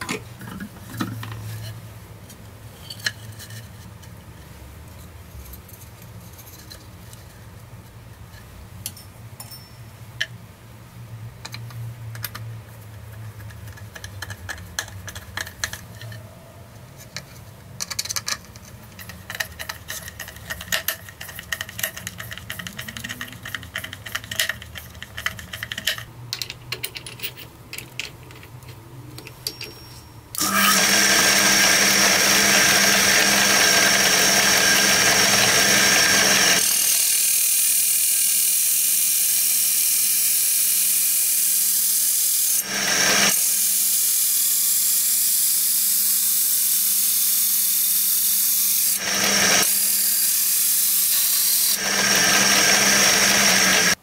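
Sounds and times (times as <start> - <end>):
screwdriver turning screw into wood: 30.4 - 37.0, 49.0 - 49.8, 51.8 - 54.0
bit cutting through wood: 30.4 - 37.2, 42.6 - 43.4, 48.9 - 50.4, 51.4 - 54.0
drill press humming and whining: 30.4 - 37.5, 42.6 - 43.8, 48.9 - 54.0.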